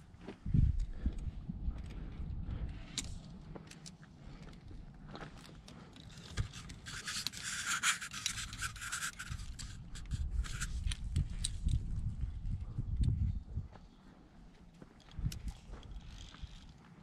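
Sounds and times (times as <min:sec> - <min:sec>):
rubbing and scraping on rock: 0:05.8 - 0:11.0.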